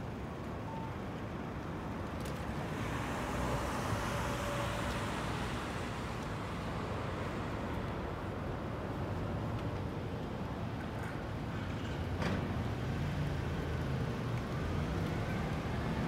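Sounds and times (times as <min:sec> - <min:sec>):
city street traffic: 0:00.0 - 0:16.0
car passing by: 0:02.4 - 0:08.2.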